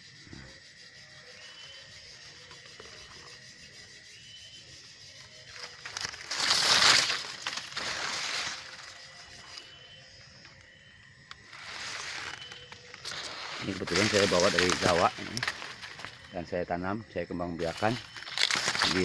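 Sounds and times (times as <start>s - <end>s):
leaves rustling and scraping: 5.0s - 10.5s, 11.3s - 19.0s.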